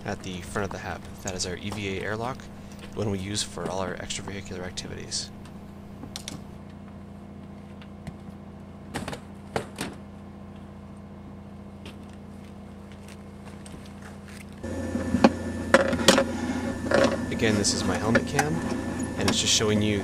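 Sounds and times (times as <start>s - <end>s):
steady low hum: 0.0s - 20.0s
loud mix of noise: 14.6s - 20.0s.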